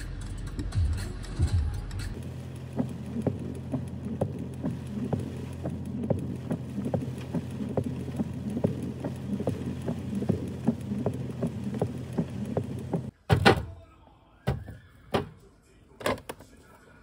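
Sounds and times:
car engine hum from inside: 1.8 - 13.1
light tapping: 2.1 - 13.1.

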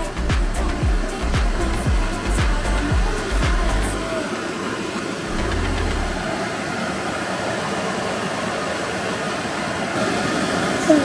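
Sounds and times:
water rushing over cascade: 0.0 - 11.0.

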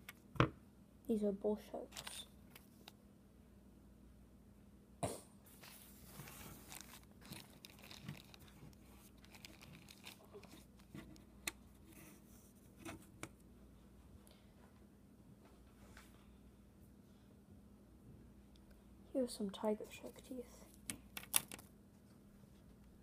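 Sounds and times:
rustling: 5.5 - 13.1.

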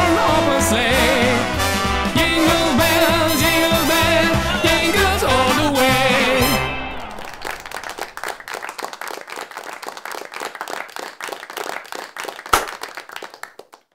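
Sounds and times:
people clapping and applauding: 6.4 - 13.9.

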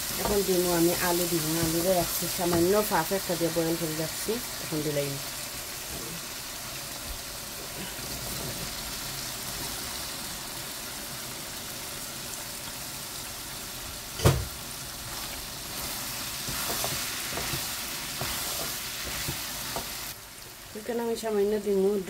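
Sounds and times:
wooden spoon stirring potatoes: 0.0 - 4.9, 15.0 - 20.2
food sizzling in a wok: 0.0 - 22.0.

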